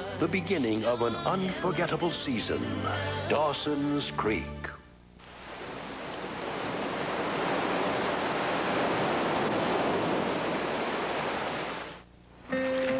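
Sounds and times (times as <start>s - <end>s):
heavy rain: 5.3s - 12.0s
rough water rushing: 5.4s - 12.0s.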